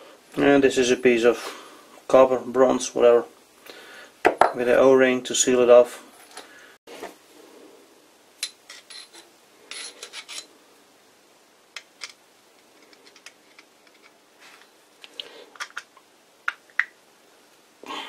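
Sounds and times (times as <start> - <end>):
metal rod clicking and scraping: 8.4 - 10.5.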